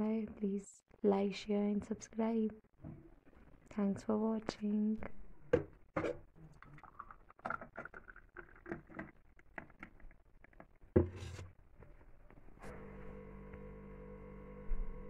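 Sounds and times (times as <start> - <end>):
thick liquid glugging and splashing: 6.0 - 10.8.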